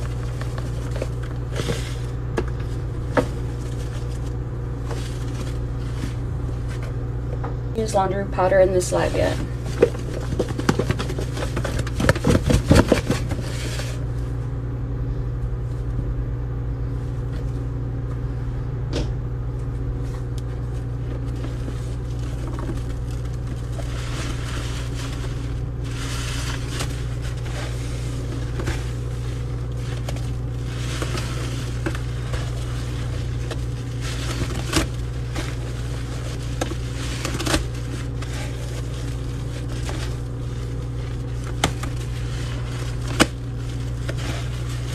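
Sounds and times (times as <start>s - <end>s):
low background hum: 0.0s - 44.9s
sponge scraping against basin: 21.4s - 41.2s.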